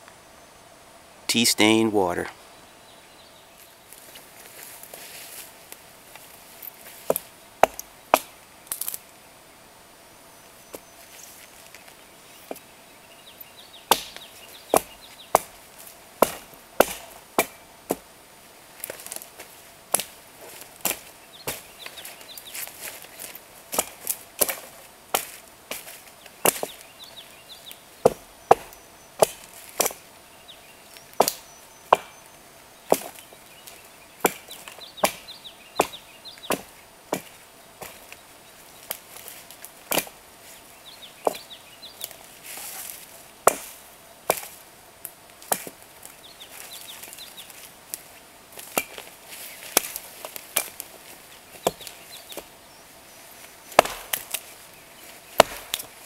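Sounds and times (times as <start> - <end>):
hatchet chopping log: 7.0 - 9.0, 13.9 - 15.6, 16.2 - 18.1, 23.7 - 26.8, 28.0 - 30.0, 31.1 - 32.2, 32.9 - 33.2, 34.2 - 38.0, 39.9 - 40.2, 41.2 - 41.5, 43.4 - 44.6, 48.6 - 50.9, 51.6 - 52.5, 53.7 - 54.4, 55.3 - 56.0.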